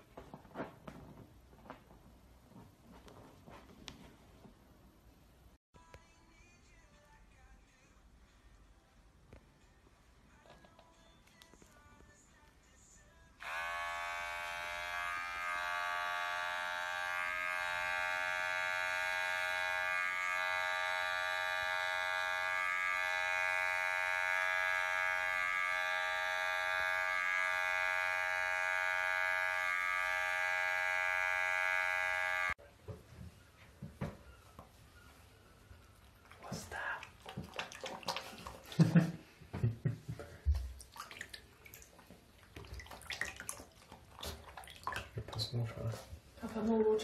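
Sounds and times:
electric hair clipper buzzing: 13.4 - 32.6.

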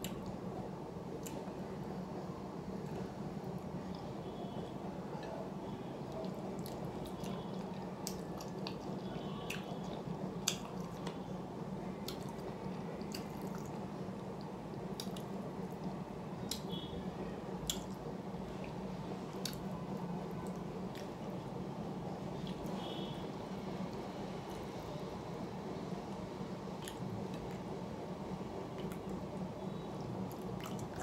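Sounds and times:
steady low hum: 0.0 - 31.0
person chewing food: 6.1 - 11.1, 12.0 - 13.7, 14.8 - 16.6, 19.4 - 19.7
wet mouth clicks and smacks: 13.1 - 13.7, 15.0 - 15.3, 26.8 - 27.6.

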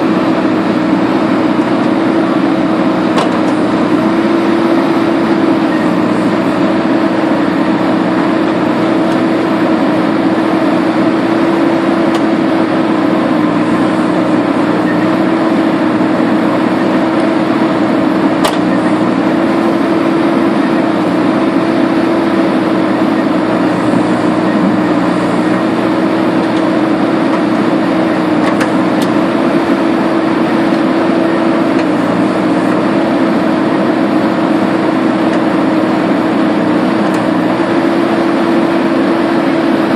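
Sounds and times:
diesel engine droning: 0.0 - 39.9.

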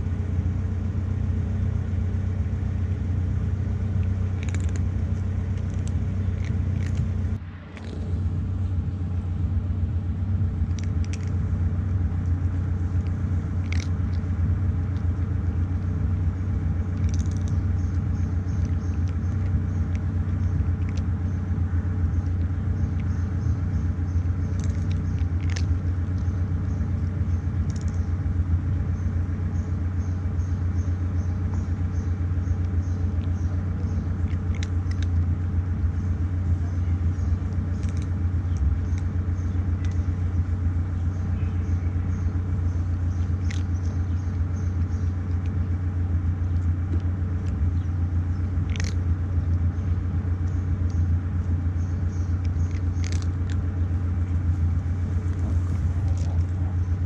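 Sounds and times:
cat crunching dry kibble: 0.0 - 8.3, 10.2 - 29.5, 30.2 - 41.4, 42.0 - 57.0
low machinery rumble: 0.0 - 57.0.

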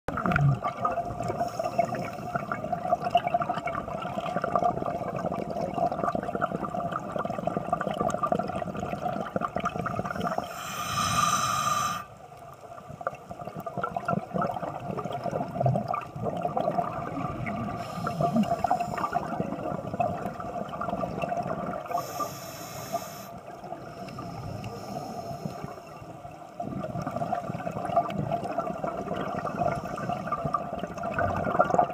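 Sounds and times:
bubbles gurgling: 0.1 - 10.6, 12.8 - 22.4, 23.4 - 31.9
steady underwater drone: 0.1 - 13.1, 14.7 - 31.9
regulator breathing underwater: 1.2 - 2.6, 10.0 - 12.2, 17.6 - 19.6, 21.8 - 26.2, 29.3 - 30.5.

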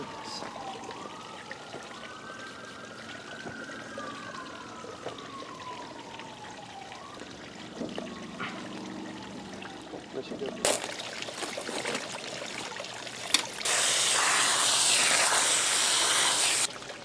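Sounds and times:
molten metal pouring hiss: 13.2 - 16.7.

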